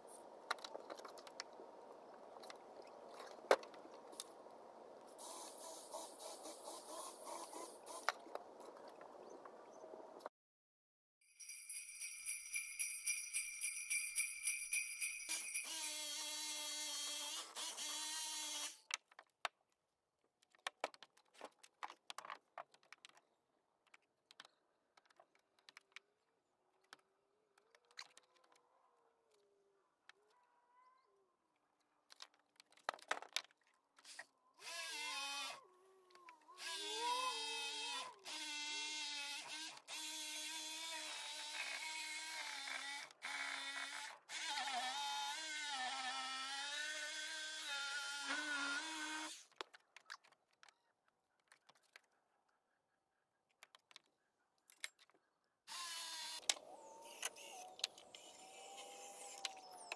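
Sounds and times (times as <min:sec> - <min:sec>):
jingle bells shaken: 0:11.3 - 0:15.8.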